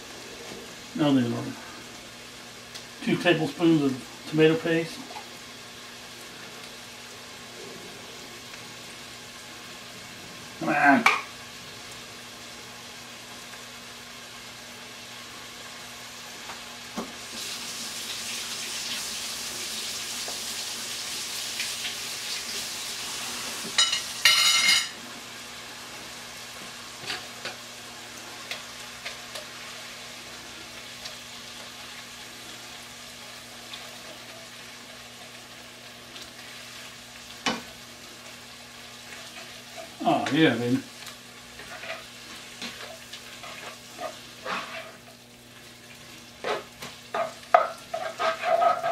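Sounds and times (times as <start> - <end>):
vegetables sizzling in oil: 0.0 - 48.9
stirring in a pot: 41.5 - 45.2, 46.4 - 48.9.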